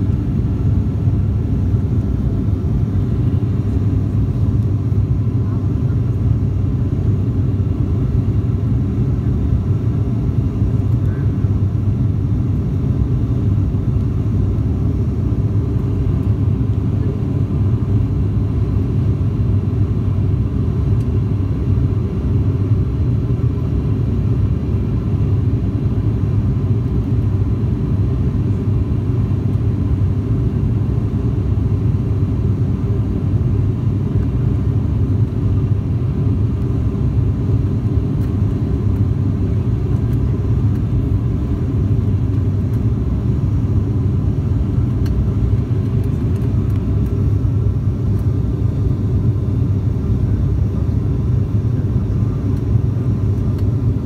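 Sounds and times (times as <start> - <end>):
airplane cabin engine rumble: 0.0 - 54.0.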